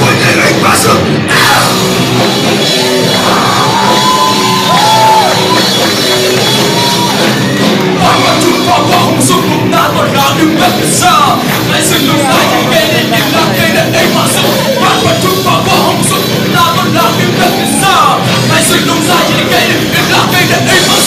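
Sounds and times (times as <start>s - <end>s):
man singing: 0.0s - 1.9s, 8.0s - 21.0s
rock band playing: 0.0s - 21.0s.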